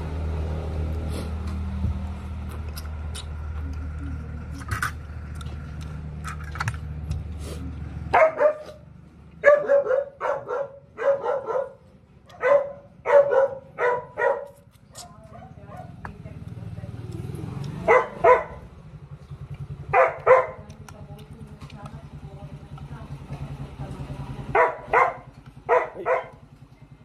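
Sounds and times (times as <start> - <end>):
dog barking: 8.1 - 8.8, 9.4 - 16.0, 17.8 - 18.7, 19.9 - 20.6, 24.5 - 26.4.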